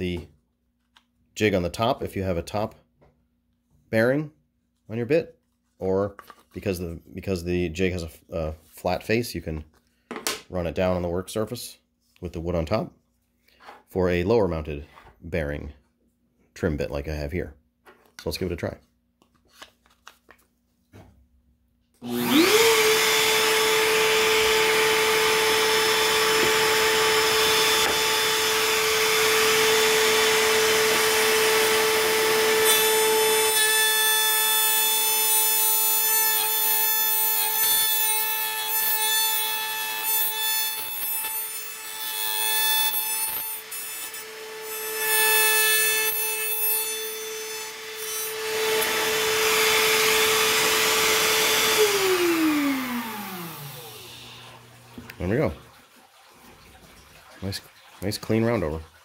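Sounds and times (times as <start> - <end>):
router whining: 22.0 - 33.6, 47.2 - 54.7
router bit cutting wood: 22.0 - 54.7.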